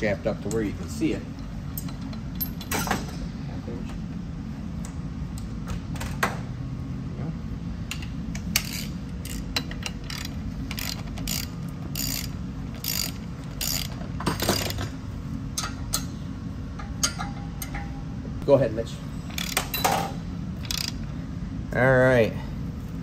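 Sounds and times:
low shop hum: 0:00.0 - 0:23.0
ratchet wrench clicking: 0:07.9 - 0:14.8, 0:20.6 - 0:21.0.

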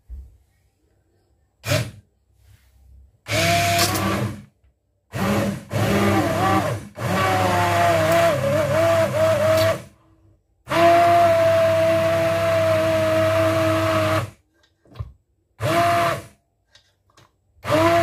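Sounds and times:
immersion blender motor: 0:03.3 - 0:04.5, 0:05.1 - 0:09.9, 0:10.7 - 0:14.4, 0:15.6 - 0:16.4, 0:17.6 - 0:18.0.

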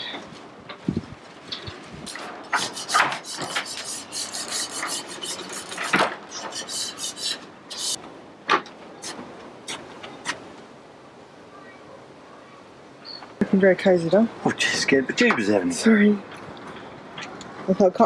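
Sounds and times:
chain clinks: 0:04.3 - 0:06.3.

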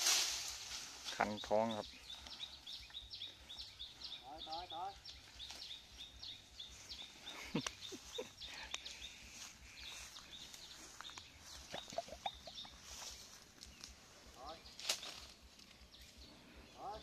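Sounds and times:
small birds chirping: 0:00.4 - 0:17.0.

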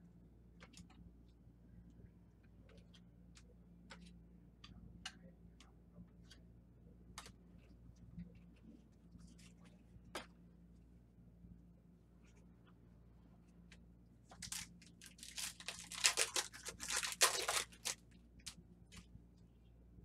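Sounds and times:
low room hum: 0:00.0 - 0:20.0
trading cards clicking: 0:14.4 - 0:18.5.

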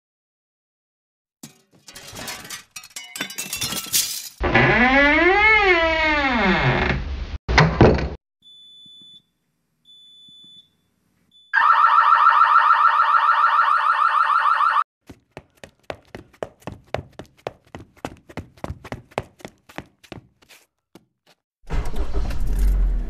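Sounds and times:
loud electronic alarm ringing: 0:11.5 - 0:14.9.

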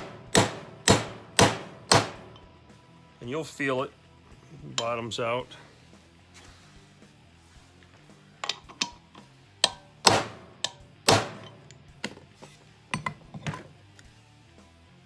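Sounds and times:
hammer striking metal: 0:00.0 - 0:02.5, 0:08.4 - 0:11.8
metal tool clanking: 0:04.7 - 0:05.2, 0:08.4 - 0:13.8.

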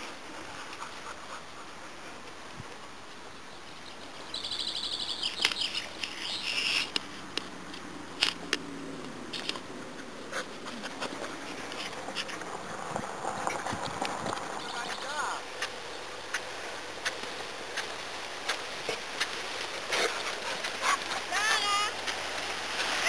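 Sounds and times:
bird chirping trill: 0:03.6 - 0:06.9.

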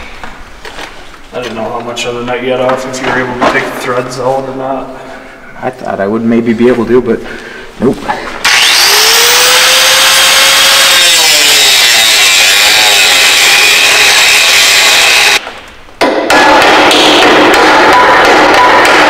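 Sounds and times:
angle grinder grinding metal: 0:08.4 - 0:15.4.

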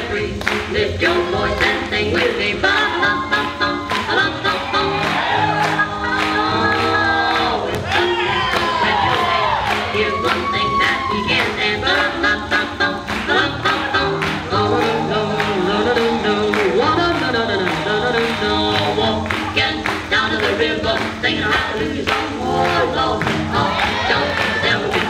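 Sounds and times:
swing music with singing: 0:00.0 - 0:25.0.

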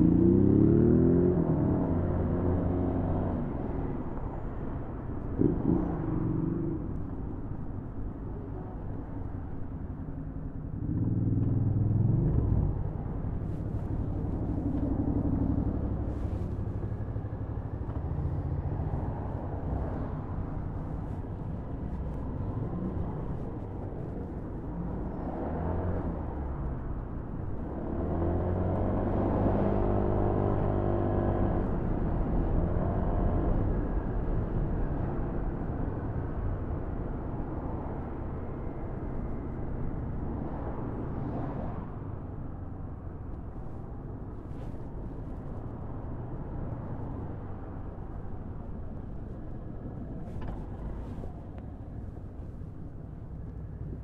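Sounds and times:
road noise: 0:00.0 - 0:54.0.

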